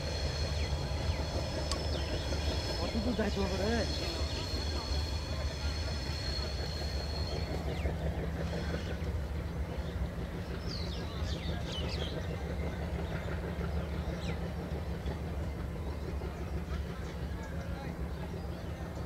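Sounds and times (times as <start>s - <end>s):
train rumbling past: 0.0s - 19.0s
birds chirping: 0.1s - 14.6s.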